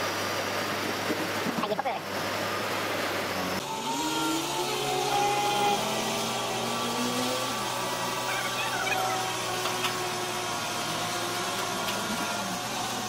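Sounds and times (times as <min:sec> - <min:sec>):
steady engine hum: 0:00.0 - 0:13.0
diesel engine revving: 0:03.3 - 0:13.0.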